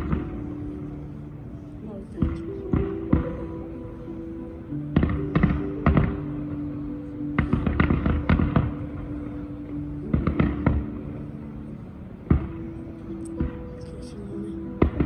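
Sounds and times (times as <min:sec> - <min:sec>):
fireworks banging: 0:00.0 - 0:00.9, 0:07.3 - 0:09.1, 0:10.0 - 0:11.1
music with long held notes: 0:00.0 - 0:15.0.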